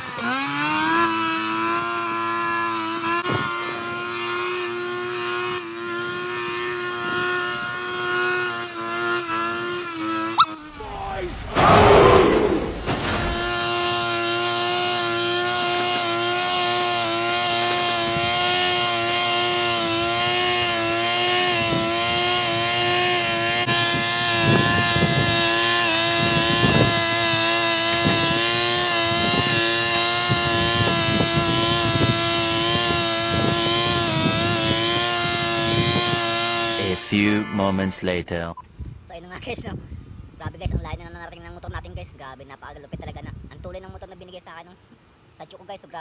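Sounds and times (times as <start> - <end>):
brush cutter engine whine: 0.0 - 37.9.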